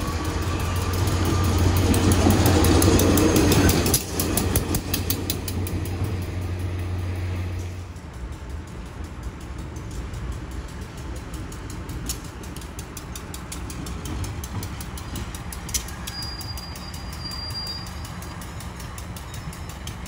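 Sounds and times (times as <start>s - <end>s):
high-pitched squeal: 0.0s - 4.6s, 15.8s - 20.0s
diesel locomotive rumbling: 0.0s - 20.0s
sharp metallic clicks: 0.0s - 20.0s.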